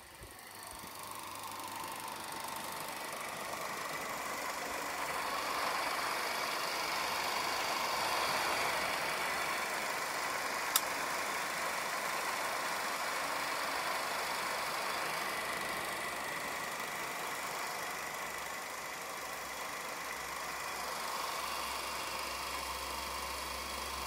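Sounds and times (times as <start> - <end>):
film projector whirring: 0.0 - 24.0
sharp click: 10.7 - 11.0.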